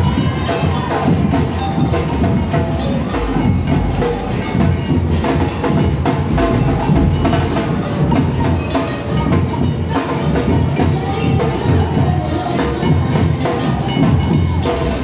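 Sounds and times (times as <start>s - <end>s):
drumming band playing: 0.0s - 15.0s.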